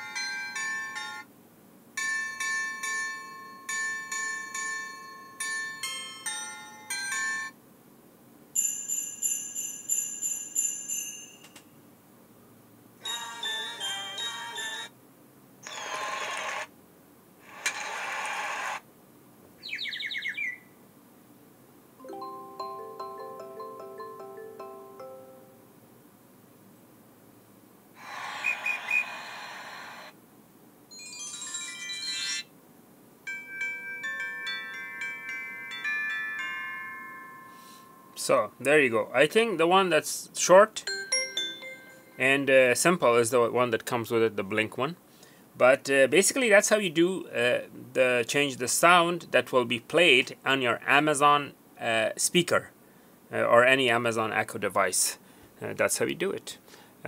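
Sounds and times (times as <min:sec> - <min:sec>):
bell-like chime: 0:00.0 - 0:01.2, 0:02.0 - 0:07.5, 0:08.6 - 0:11.6, 0:13.0 - 0:14.9, 0:22.0 - 0:25.6, 0:30.9 - 0:32.5, 0:33.3 - 0:38.2, 0:40.9 - 0:42.6
sleigh bells jingling: 0:08.6 - 0:11.6, 0:13.0 - 0:14.9, 0:30.9 - 0:32.5, 0:33.3 - 0:38.6, 0:40.9 - 0:42.8
short noisy burst: 0:28.0 - 0:30.1.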